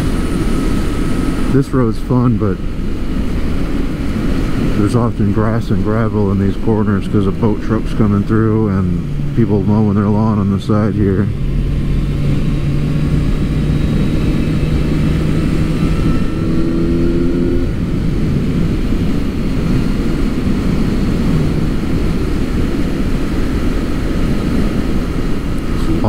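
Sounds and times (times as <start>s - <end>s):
motorcycle engine running: 0.0s - 26.0s
wind rush on microphone: 0.0s - 26.0s.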